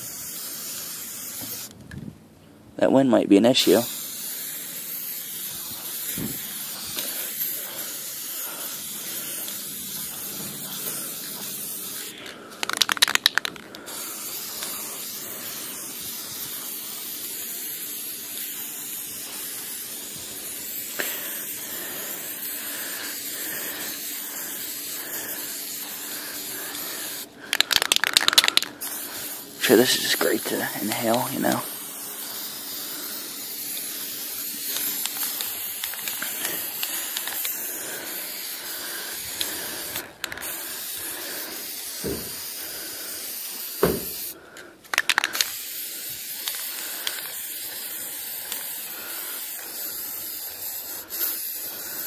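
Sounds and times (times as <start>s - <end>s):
spray can hissing: 0.0s - 1.8s, 3.6s - 52.0s
rapid clicks: 12.5s - 13.8s, 27.5s - 28.7s.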